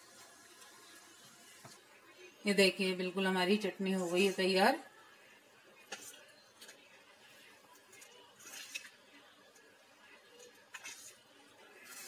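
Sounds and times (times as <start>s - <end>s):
ladle stirring thick chutney: 5.8s - 12.0s.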